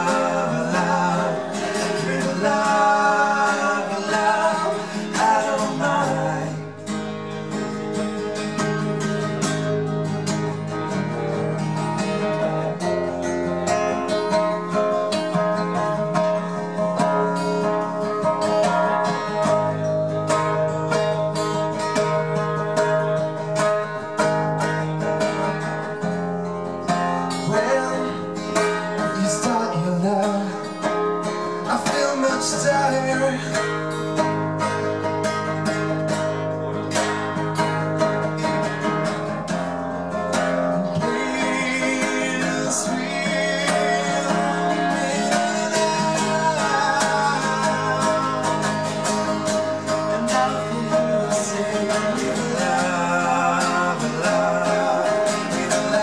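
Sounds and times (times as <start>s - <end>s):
men singing: 0.0s - 7.3s, 27.3s - 33.8s, 40.7s - 56.0s
acoustic guitars strummed: 0.0s - 56.0s.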